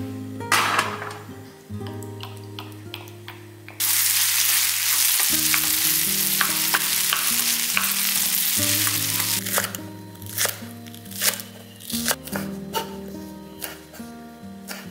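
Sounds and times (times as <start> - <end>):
soft background music: 0.0 - 14.9
food sizzling in hot oil: 3.8 - 10.5.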